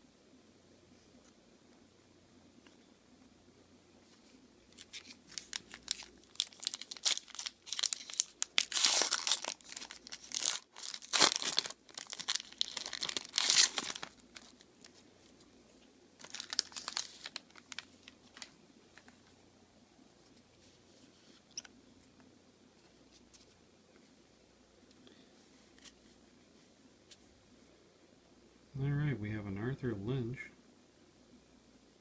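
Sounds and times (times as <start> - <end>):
foil wrapper crinkling and tearing: 4.7 - 15.0, 16.2 - 19.2.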